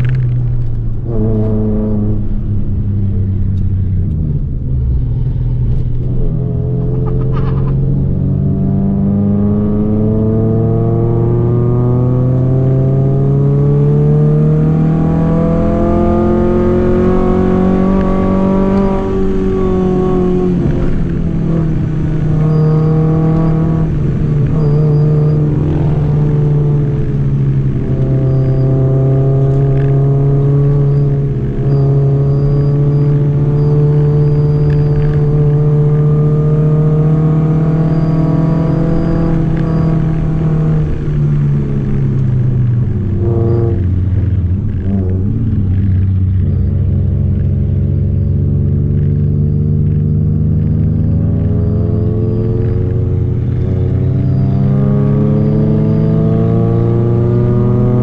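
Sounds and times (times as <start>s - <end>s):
car engine revving uphill: 0.0s - 58.0s.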